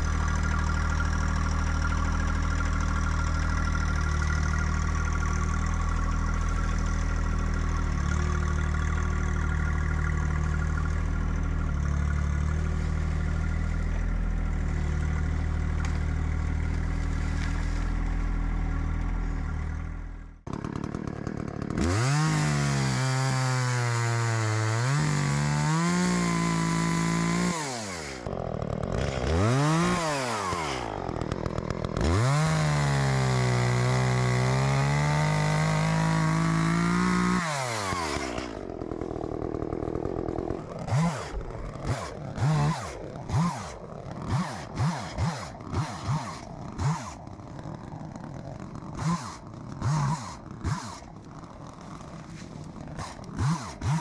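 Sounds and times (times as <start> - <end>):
engine running steadily: 0.0 - 20.5
chainsaw cutting a log: 0.0 - 54.0.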